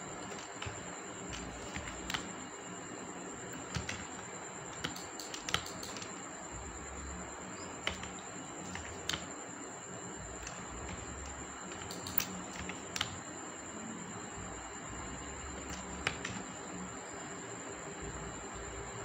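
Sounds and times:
steady hiss: 0.0s - 19.0s
keyboard and mouse clicks: 0.2s - 2.3s, 3.5s - 6.2s, 7.8s - 9.3s, 10.4s - 13.2s, 15.6s - 16.6s.

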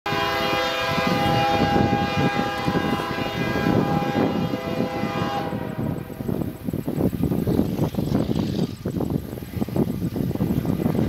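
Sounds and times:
distant train air horn: 0.1s - 6.3s
wind rumble: 0.1s - 11.0s.

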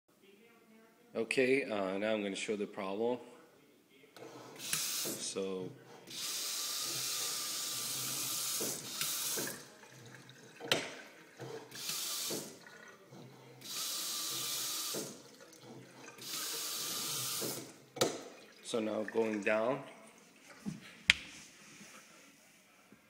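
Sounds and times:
water running into steel sink: 6.1s - 13.0s, 13.6s - 17.7s.

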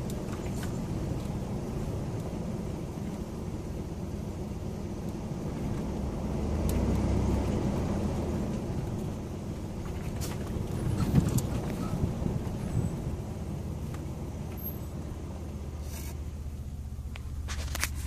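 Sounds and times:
engine and tyre rumble: 0.0s - 18.0s.

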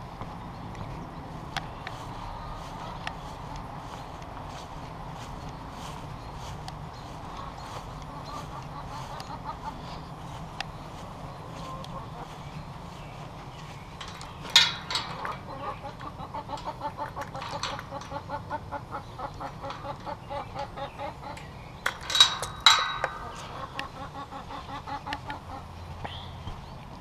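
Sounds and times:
hens clucking: 0.7s - 27.0s
wire gate clanking: 11.4s - 25.4s.

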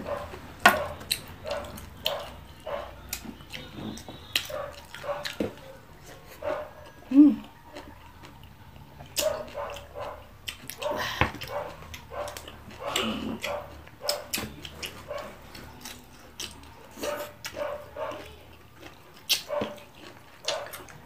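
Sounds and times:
chewing: 0.0s - 21.0s
mouth clicks and lip smacks: 19.2s - 20.9s.

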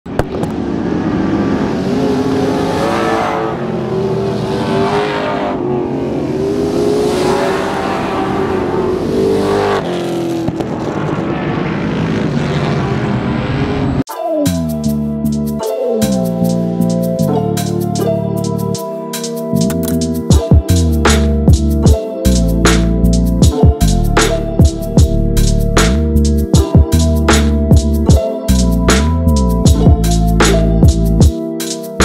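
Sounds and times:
race car engines passing: 0.1s - 14.0s.

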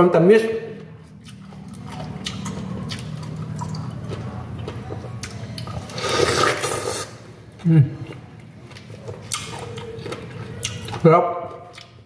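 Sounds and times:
biting into fruit: 1.1s - 12.0s
chewing clicks: 1.2s - 5.8s, 8.1s - 12.0s.

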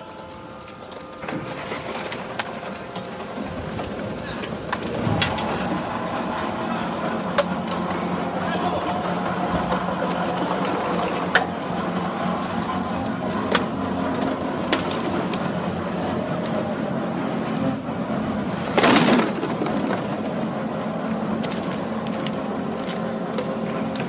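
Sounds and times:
baler and conveyor machine hum: 0.0s - 24.0s
plastic bottles cracking: 13.4s - 15.6s, 21.3s - 24.0s
plastic crunching burst: 21.3s - 24.0s.

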